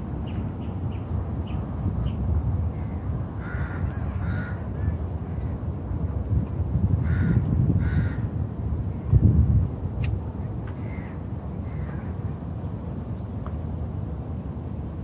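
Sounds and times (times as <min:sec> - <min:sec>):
steady low rumble: 0:00.0 - 0:15.0
crow cawing: 0:02.8 - 0:05.0, 0:07.0 - 0:08.3, 0:10.8 - 0:12.0.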